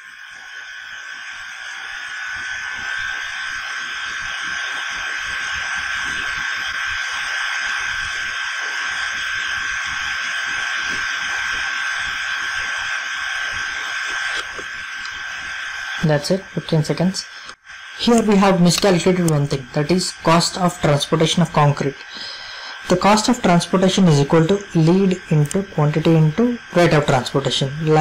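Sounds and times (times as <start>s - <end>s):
buzzing hiss: 0.0s - 28.0s
high held tone: 16.0s - 28.0s.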